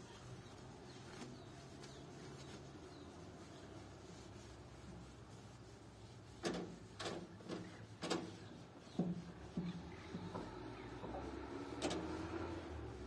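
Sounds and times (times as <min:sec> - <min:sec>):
faint steady background noise: 0:00.0 - 0:13.0
irregular knocks and clunks: 0:06.4 - 0:12.4.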